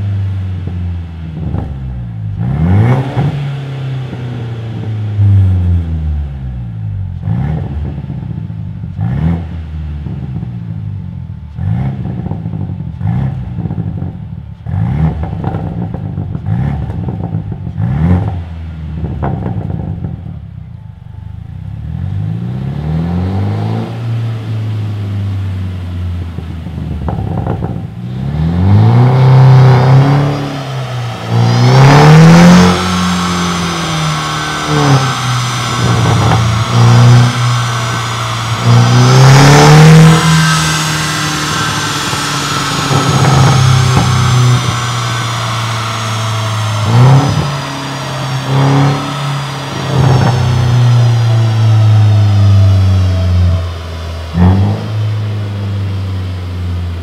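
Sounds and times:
turbocharged car engine revving: 0.0s - 57.0s
exhaust pops: 11.5s - 21.5s, 25.8s - 55.7s.

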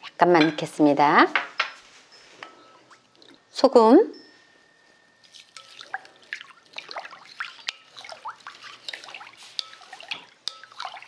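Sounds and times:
water swishing and trickling: 4.2s - 11.0s
spoon clicking against bowl: 5.3s - 6.2s, 7.6s - 11.0s.

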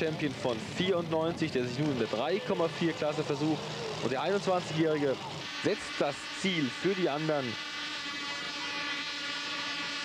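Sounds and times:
multiple engines droning: 0.0s - 10.0s.

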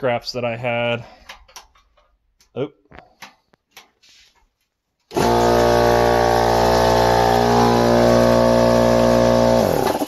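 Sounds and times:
electric motor humming: 5.1s - 10.0s.

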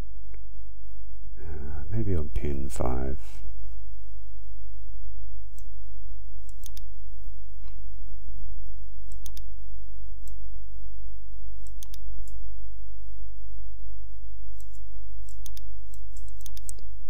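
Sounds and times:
steady low hum: 0.0s - 17.0s
computer mouse clicking: 5.5s - 5.7s, 6.4s - 6.9s, 8.6s - 9.6s, 10.2s - 10.4s, 11.6s - 12.4s, 14.5s - 16.9s.

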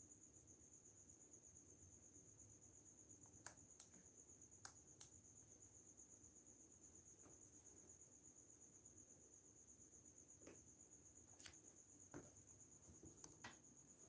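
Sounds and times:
faint sharp clicks: 3.2s - 4.0s, 4.6s - 5.2s.

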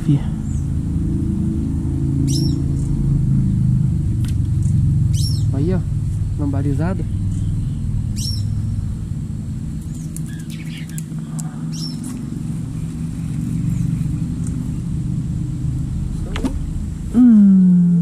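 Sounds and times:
engine humming: 0.0s - 18.0s
bird chirps: 2.2s - 3.0s, 4.6s - 5.6s, 6.9s - 8.9s, 9.8s - 14.9s.

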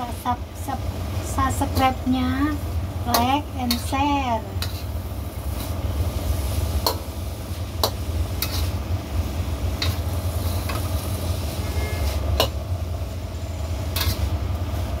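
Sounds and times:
steady low hum: 0.0s - 15.0s
metal spatula scraping wok: 1.5s - 15.0s.

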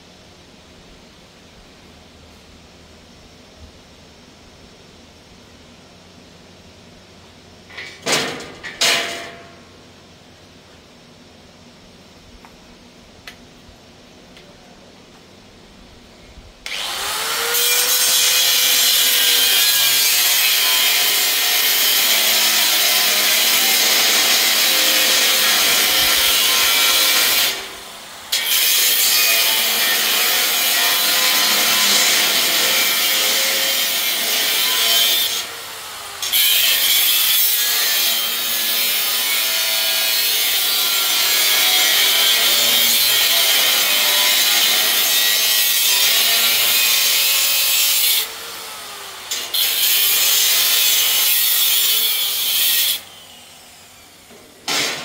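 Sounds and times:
angle grinder cutting steel: 16.7s - 54.1s.

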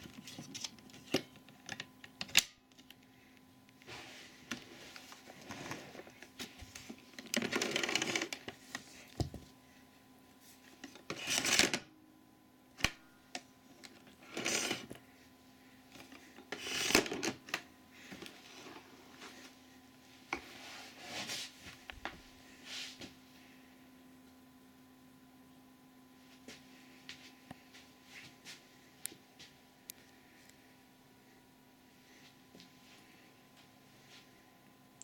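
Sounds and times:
rubbing and scraping plastic: 14.2s - 15.0s.

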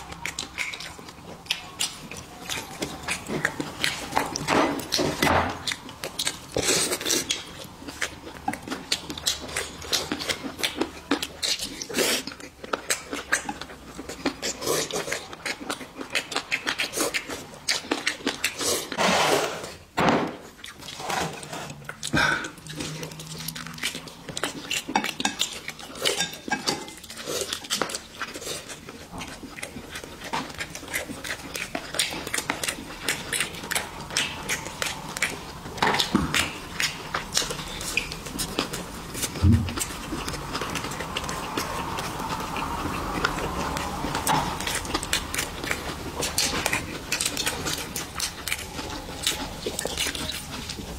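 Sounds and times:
wet chewing and lip-smacking: 0.0s - 19.0s, 20.4s - 50.9s
chopsticks and dishes clinking: 24.6s - 27.2s.

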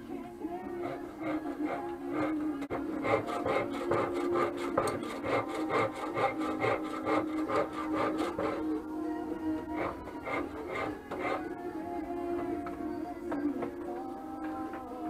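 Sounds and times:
rasp scraping wood: 0.6s - 11.6s.

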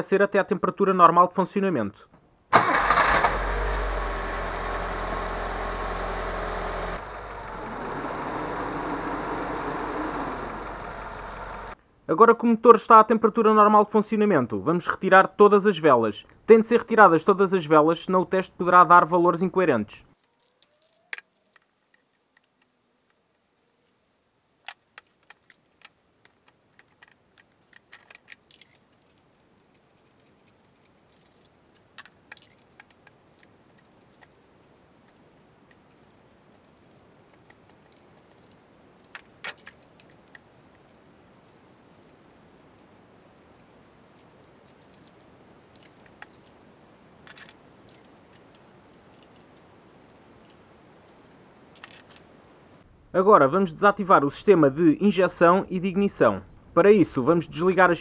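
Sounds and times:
rattling: 4.6s - 11.8s, 24.6s - 46.6s, 47.2s - 52.3s
tools clicking on car engine: 6.9s - 11.8s, 24.7s - 46.6s, 47.3s - 52.2s.

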